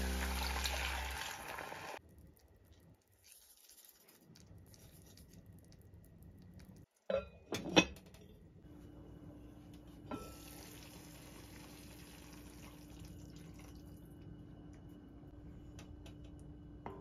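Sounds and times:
background music: 0:00.0 - 0:01.8
kitchenware clattering: 0:07.1 - 0:08.1.

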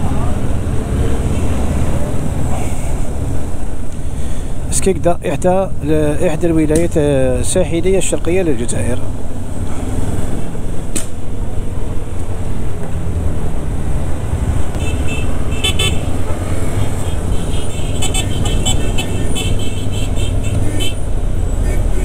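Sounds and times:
motorcycle engine rumbling: 0:05.7 - 0:22.0
car horns tooting: 0:14.7 - 0:22.0.

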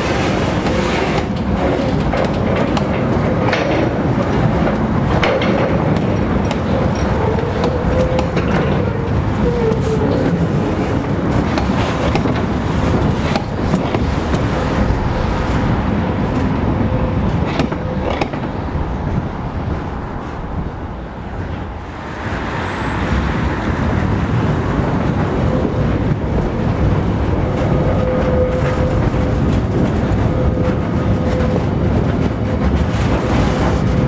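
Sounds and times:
wheels clicking over rail joints: 0:00.0 - 0:22.0
train wheels rumbling on track: 0:00.0 - 0:34.0.

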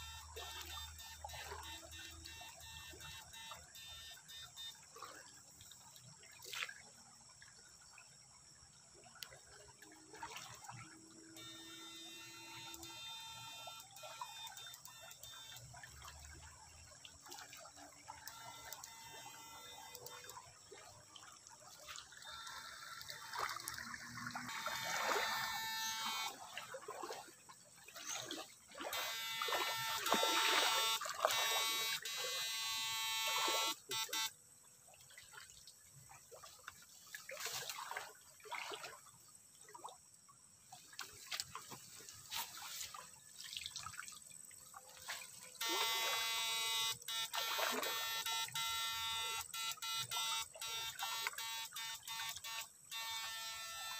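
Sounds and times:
water splashing: 0:09.0 - 0:39.9, 0:40.7 - 0:53.8
electric whine of shocker: 0:22.4 - 0:26.4, 0:28.9 - 0:34.3, 0:45.6 - 0:53.9.

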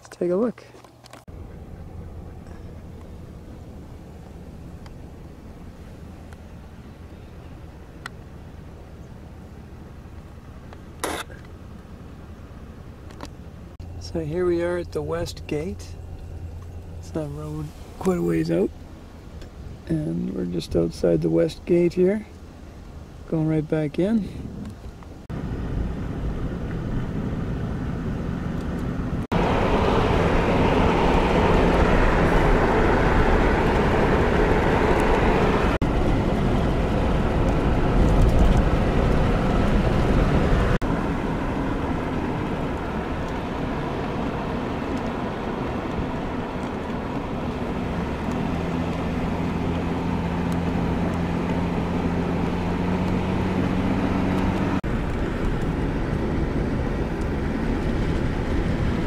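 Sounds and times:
car road and engine noise: 0:00.0 - 0:59.0.

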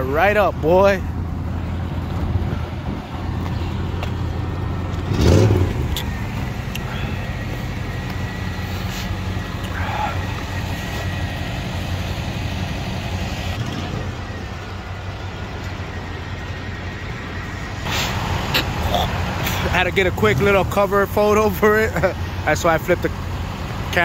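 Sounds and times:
car engine running: 0:00.0 - 0:24.0
engine revving: 0:02.2 - 0:14.5, 0:17.8 - 0:21.0.

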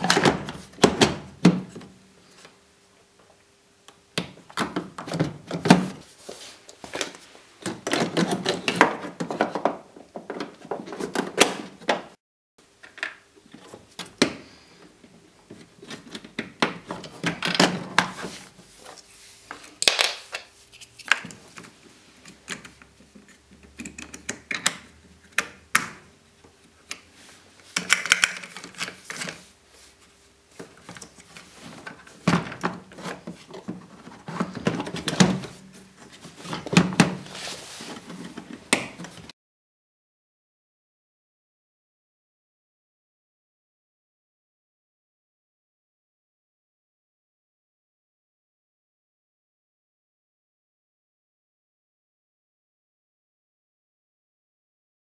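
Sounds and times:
plastic parts clicking and scraping: 0:27.7 - 0:29.5.

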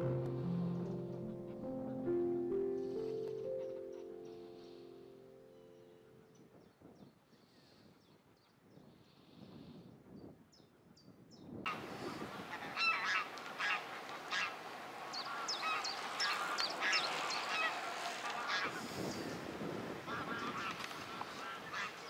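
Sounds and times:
geese honking: 0:11.7 - 0:19.4, 0:20.1 - 0:22.0.

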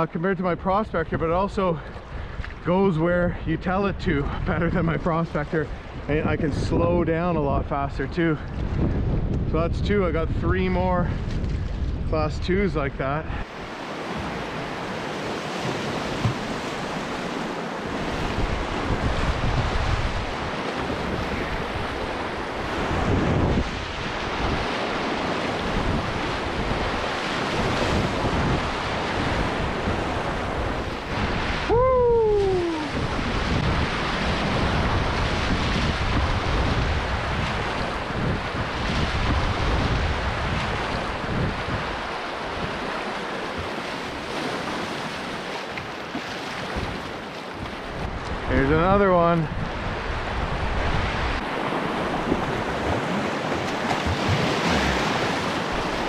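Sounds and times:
wind buffeting microphone: 0:00.8 - 0:56.0
rushing whitewater: 0:13.0 - 0:56.0.

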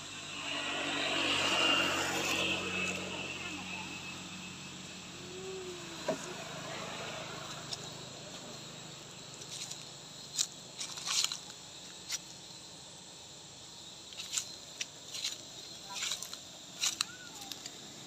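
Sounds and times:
distant engine hum: 0:00.0 - 0:18.0
steps on dry leaves: 0:09.2 - 0:12.2, 0:14.1 - 0:17.8.

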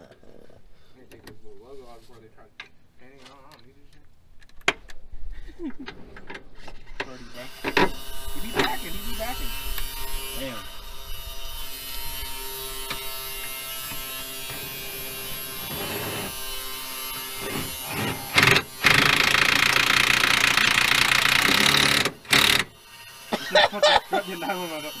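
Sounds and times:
power tool running: 0:07.2 - 0:25.0.

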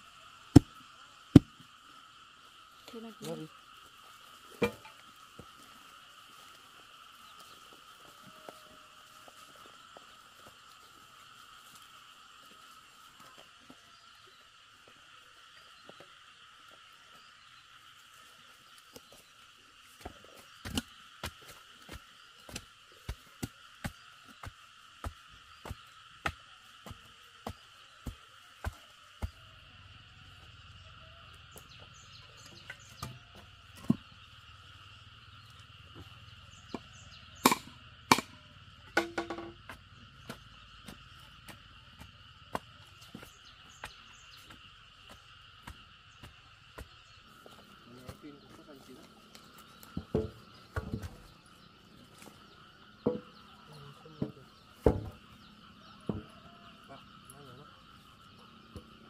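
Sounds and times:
frogs and insects chorus: 0:00.0 - 0:59.0
hand tool knocking on wood: 0:39.0 - 0:41.0.

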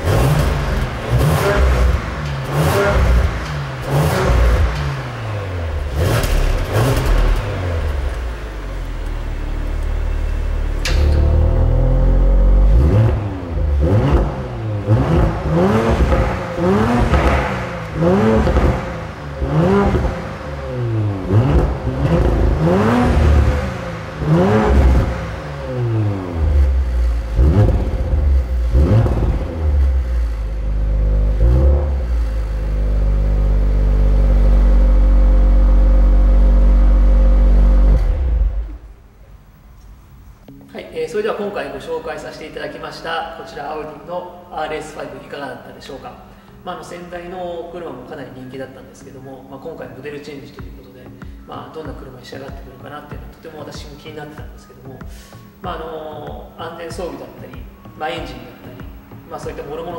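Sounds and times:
car engine revving: 0:00.0 - 0:39.2.

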